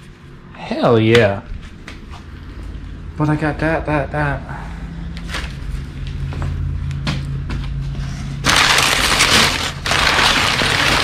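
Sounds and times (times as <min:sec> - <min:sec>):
packing paper rustling: 0:08.4 - 0:11.0.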